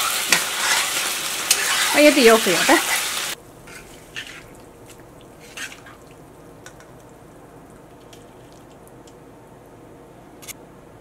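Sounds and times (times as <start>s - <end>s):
spatula stirring in a wok: 0.0s - 6.1s.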